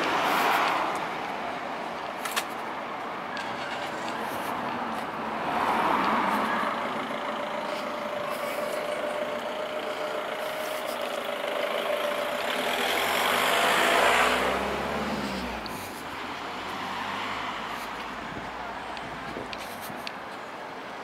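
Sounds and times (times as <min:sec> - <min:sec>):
road noise: 0:00.0 - 0:21.0
vehicle engine running: 0:05.6 - 0:16.2.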